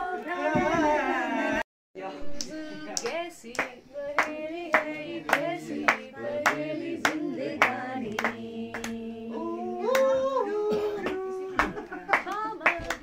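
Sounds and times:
people singing slow melody: 0.0s - 12.0s
steady hand clapping: 2.3s - 9.0s, 11.0s - 13.0s.

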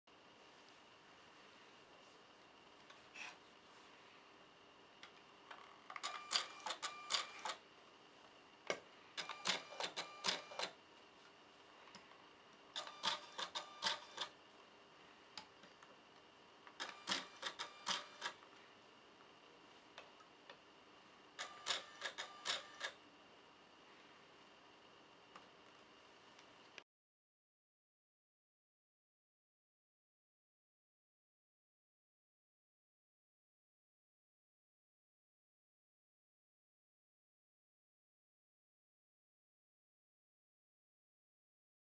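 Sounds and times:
inkjet printer quick clicks: 16.8s - 18.4s, 21.4s - 23.0s.

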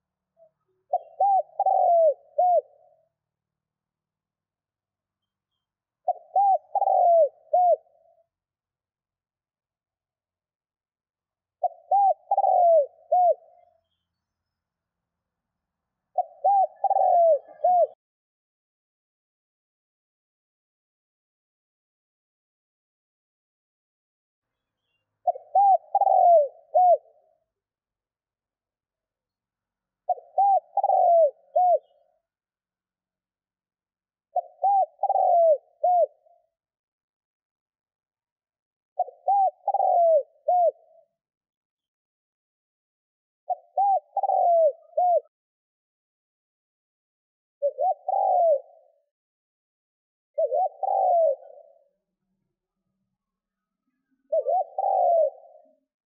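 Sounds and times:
dove cooing: 0.9s - 3.0s, 6.0s - 8.2s, 11.6s - 13.7s, 16.1s - 18.0s, 25.2s - 27.3s, 30.1s - 32.0s, 34.3s - 36.4s, 39.0s - 41.2s, 43.5s - 45.4s, 47.6s - 49.0s, 50.4s - 52.0s, 54.3s - 55.9s.

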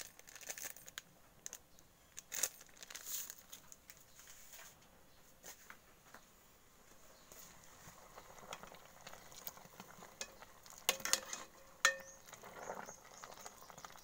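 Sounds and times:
plastic sachet crinkling: 0.0s - 4.0s.

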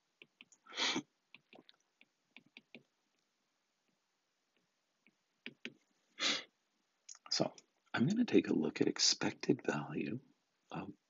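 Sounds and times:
short breath: 0.6s - 1.0s, 6.2s - 6.5s.

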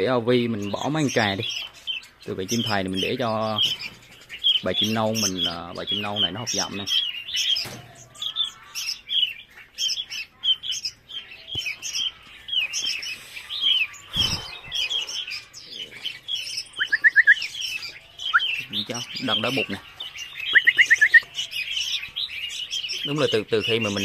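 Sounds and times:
birds chirping: 0.0s - 24.0s
rising bird notes: 12.0s - 24.0s.

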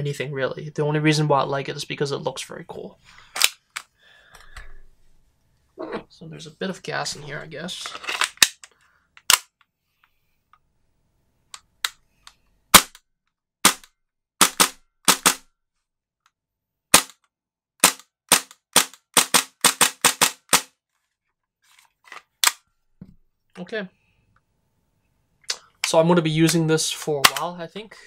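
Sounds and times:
airsoft pistol cracks: 8.4s - 9.5s, 13.6s - 15.4s, 16.9s - 17.2s.

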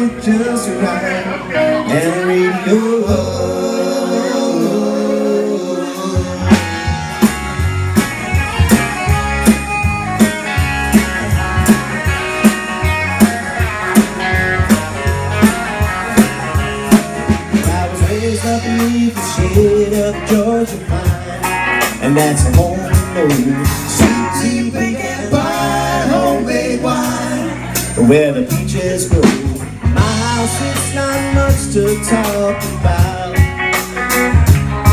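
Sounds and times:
electric guitars and bass: 0.0s - 34.9s
drum kit beat: 5.9s - 34.9s.

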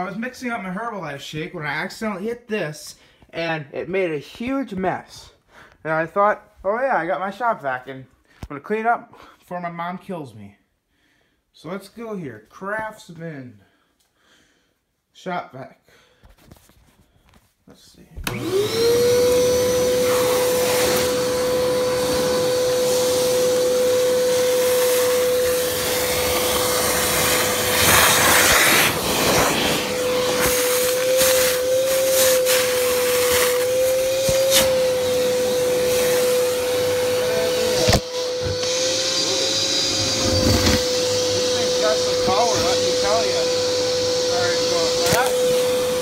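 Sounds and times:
shop vac motor whine: 18.2s - 46.0s.

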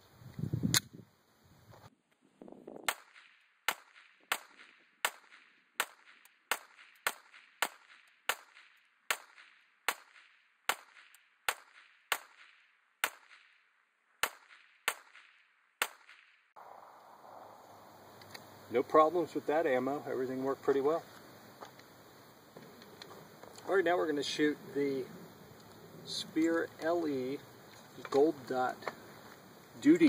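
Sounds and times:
pistol shots with echo: 2.9s - 13.5s, 14.2s - 16.8s.

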